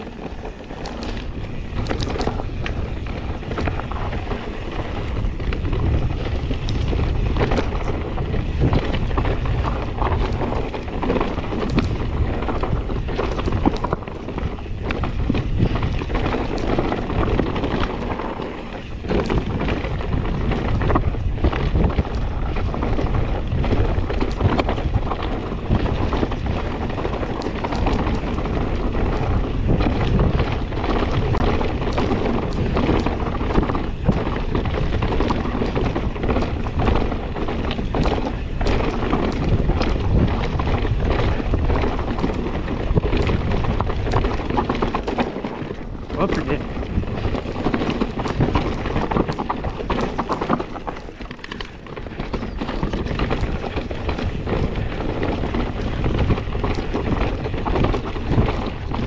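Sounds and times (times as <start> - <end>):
bike knocks and rattles: 0.0 - 59.0
tyres on rough trail: 0.0 - 59.0
wind buffeting microphone: 0.0 - 59.0.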